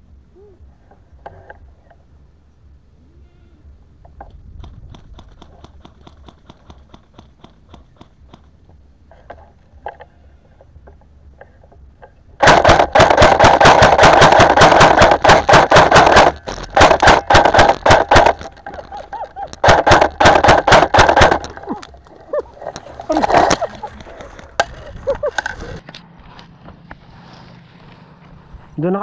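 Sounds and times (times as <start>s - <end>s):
airsoft gun firing full-auto: 12.4s - 18.4s, 19.6s - 21.5s.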